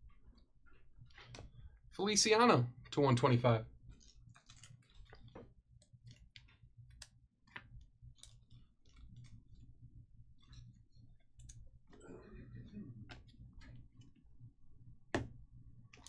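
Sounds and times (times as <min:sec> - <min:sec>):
faint clicks and taps: 0:00.0 - 0:01.9, 0:03.8 - 0:12.0
steady low hum: 0:00.0 - 0:16.0.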